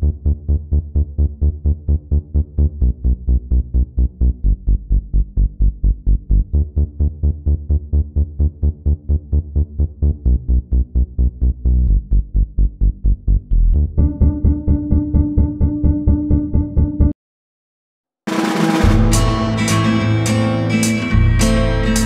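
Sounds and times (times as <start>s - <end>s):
electronic music with pulsing beat: 13.6s - 17.2s, 18.8s - 22.0s.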